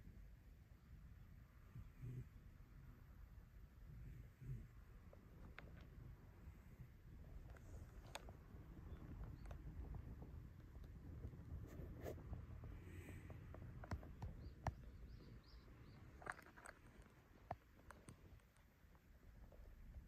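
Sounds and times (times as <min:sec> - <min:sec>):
faint rustles: 0:03.9 - 0:20.0
faint soft clicks: 0:07.3 - 0:11.3, 0:13.1 - 0:19.6.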